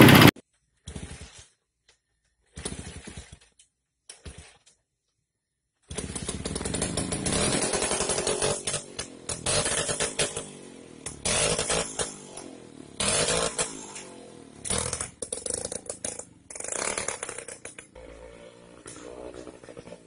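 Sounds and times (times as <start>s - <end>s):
small petrol engine revving: 5.9s - 20.0s.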